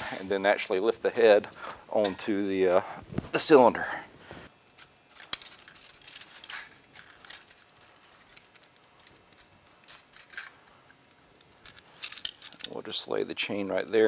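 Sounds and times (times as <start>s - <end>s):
metallic clicks and rattles: 4.7s - 10.6s, 11.6s - 12.8s.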